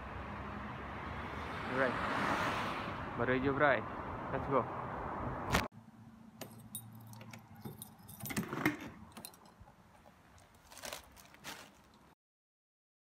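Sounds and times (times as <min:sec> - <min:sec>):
keys clinking: 0:06.4 - 0:09.6.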